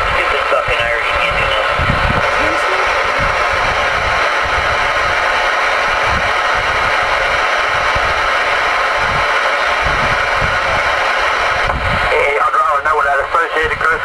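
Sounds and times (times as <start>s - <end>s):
radio static hiss: 0.0s - 5.8s, 6.4s - 14.0s.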